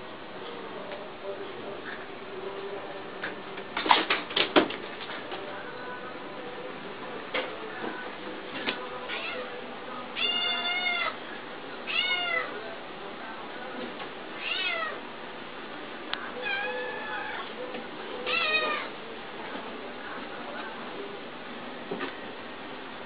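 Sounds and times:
cat meowing: 0:10.2 - 0:11.2, 0:11.9 - 0:12.6, 0:14.4 - 0:15.0, 0:16.4 - 0:17.5, 0:18.2 - 0:18.9.

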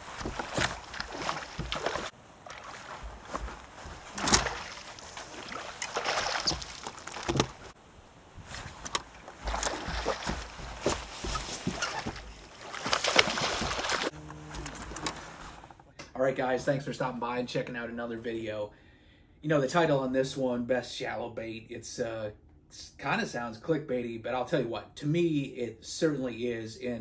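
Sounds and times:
fish thrashing and splashing: 0:00.0 - 0:07.8, 0:08.4 - 0:14.1
low steady hum: 0:00.0 - 0:24.1.

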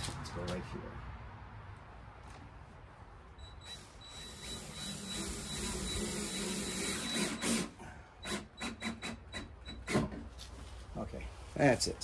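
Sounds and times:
cordless drill driving screw: 0:03.4 - 0:10.2.

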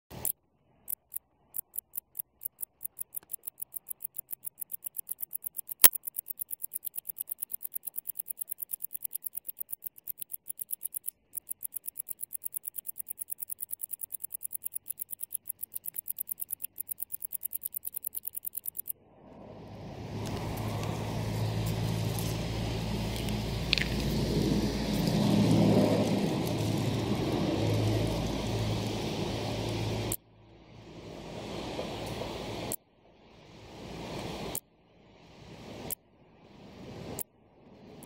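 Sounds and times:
sharp click: 0:00.1 - 0:18.9
cricket chirping: 0:00.9 - 0:19.0, 0:19.6 - 0:30.2.

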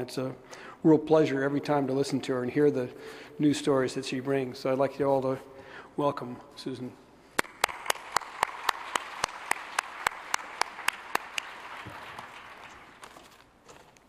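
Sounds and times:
sharp hand claps close by: 0:07.4 - 0:13.1
audience applauding: 0:07.4 - 0:13.4.

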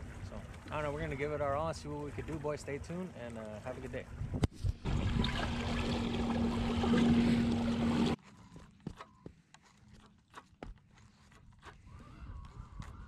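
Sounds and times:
water rushing along hull: 0:00.0 - 0:08.2
wind: 0:00.0 - 0:13.0
motor hum: 0:04.8 - 0:09.0.

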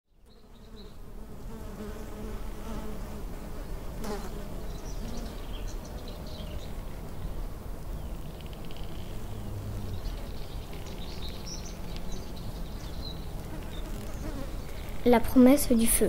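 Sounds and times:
flying insect buzzing: 0:00.2 - 0:15.2
faint bird chirps: 0:08.0 - 0:15.2.

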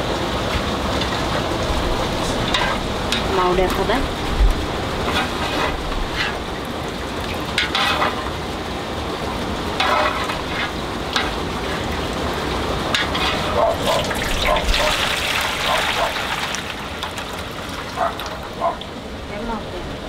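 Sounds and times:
pot hissing over fire: 0:01.2 - 0:08.6, 0:09.6 - 0:16.2.

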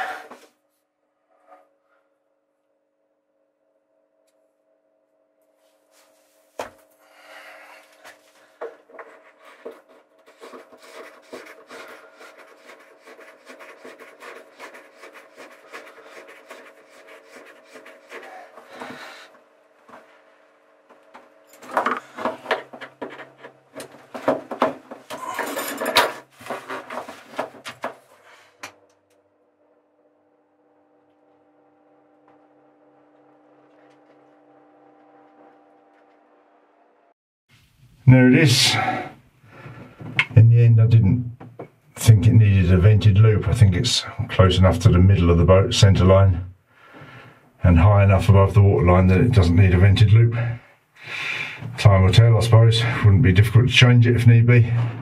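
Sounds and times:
hose rubbing and knocking: 0:08.6 - 0:19.2, 0:21.6 - 0:28.1.

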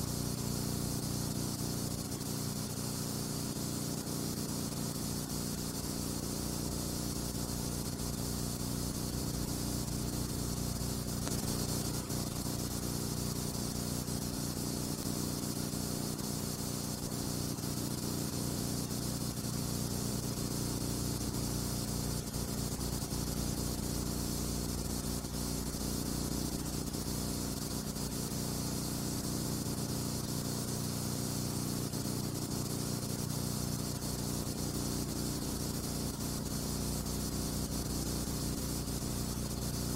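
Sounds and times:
steady hiss: 0:00.0 - 0:39.9.

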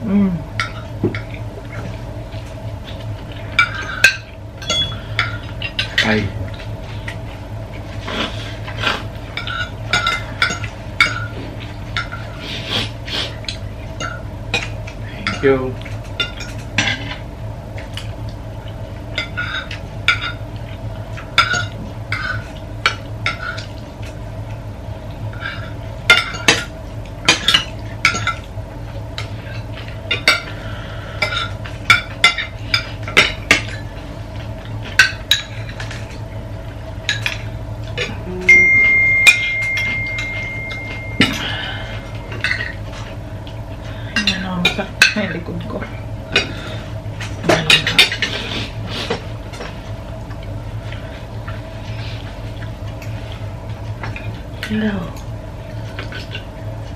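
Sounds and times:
steady high-pitched tone: 0:38.3 - 0:42.1.

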